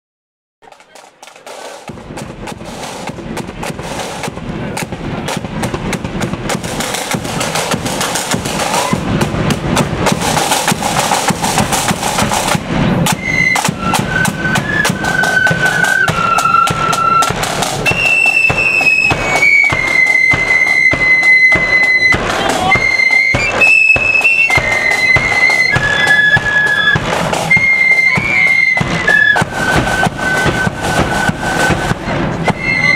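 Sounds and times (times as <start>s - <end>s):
side drums and bass drum march: 0.6s - 32.9s
flutes playing high melody: 11.0s - 32.9s.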